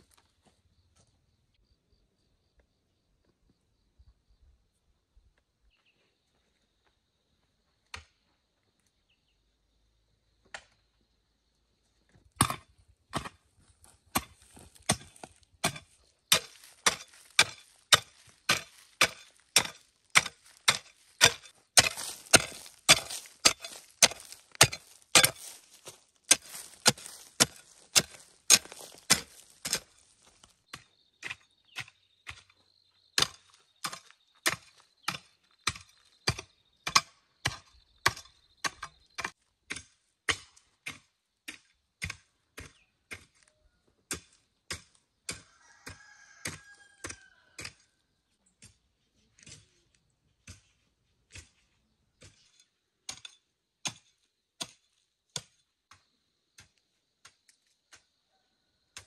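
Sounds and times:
hand tool striking: 14.9 - 30.5.

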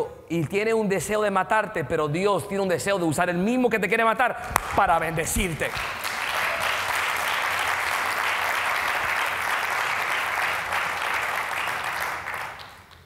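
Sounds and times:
congregation applauding: 4.4 - 13.0.

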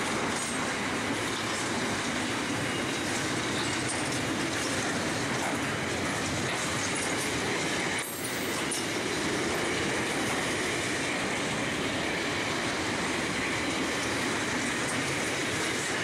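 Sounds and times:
freight train wheels on rails: 0.0 - 16.0.

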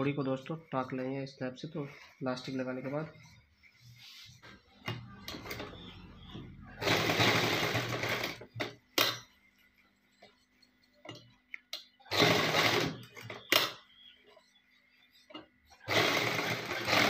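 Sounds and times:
sewing machine stitching: 4.8 - 9.2, 12.1 - 13.7, 15.8 - 17.0.

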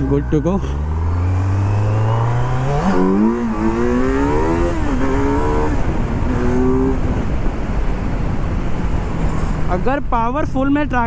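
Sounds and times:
motorcycle engine accelerating: 0.0 - 9.7.

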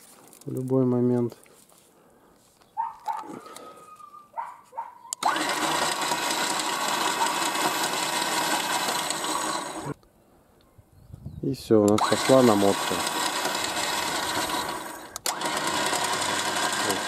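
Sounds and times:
electric winch motor running: 5.1 - 10.0, 11.9 - 17.0.

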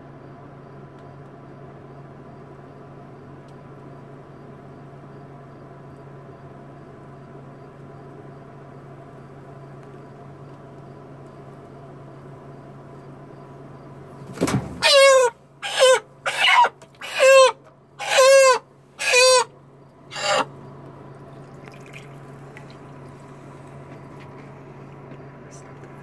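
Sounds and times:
chicken squawking in distress: 14.8 - 20.6.

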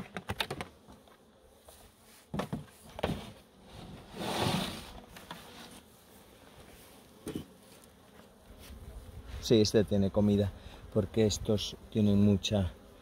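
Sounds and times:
clicks and knocks on wooden hive: 0.0 - 1.2, 2.3 - 3.4
wooden scrape: 2.3 - 5.8.

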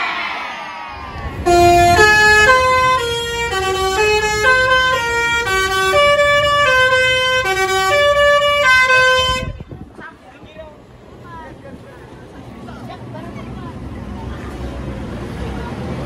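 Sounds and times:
bus air horns playing a tune: 1.1 - 9.7.

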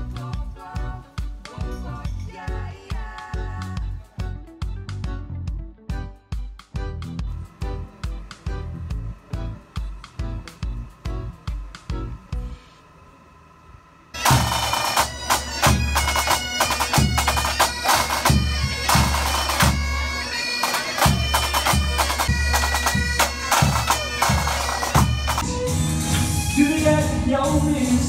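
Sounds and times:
drum beat: 7.6 - 12.1, 14.2 - 25.5
bagpipes playing: 14.1 - 26.6.

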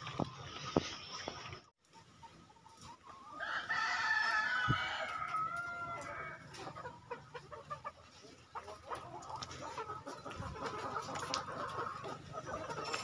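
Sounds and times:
chicken clucking: 0.1 - 13.0
chicken crowing: 3.3 - 6.8.

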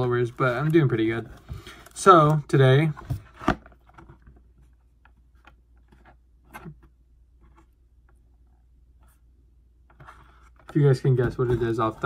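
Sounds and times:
cardboard box handled: 9.9 - 12.0.

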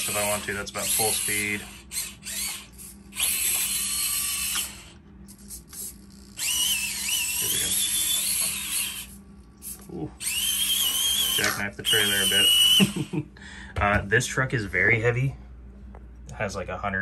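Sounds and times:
small electric motor whining: 0.0 - 13.2.

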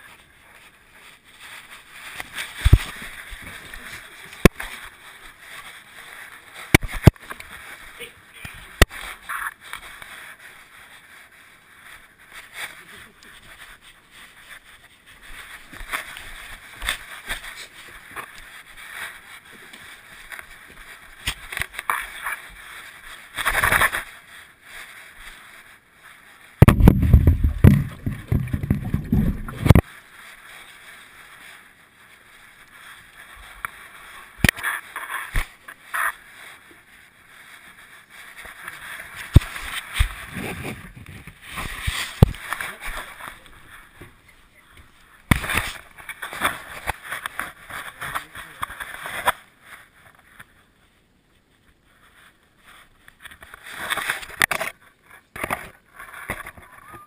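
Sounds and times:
rubbing and knocking on camera: 1.5 - 4.9, 26.6 - 29.9, 38.4 - 44.2.

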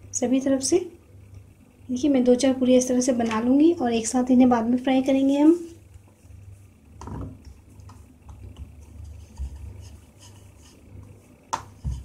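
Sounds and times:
low steady hum: 0.0 - 12.0
dough pressed by hand: 7.0 - 12.0
rolling pin knocking on board: 11.5 - 12.0.

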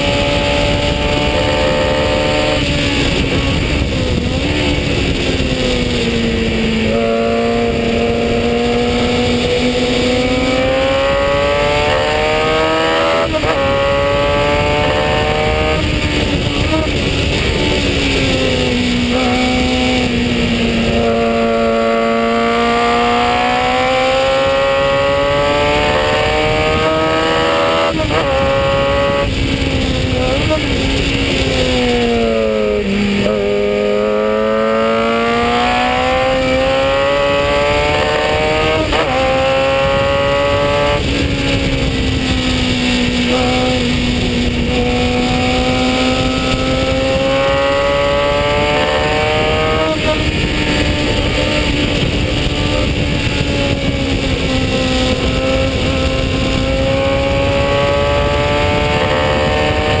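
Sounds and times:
gear changes: 0.0 - 60.0
racing engine at high revs: 0.0 - 60.0.

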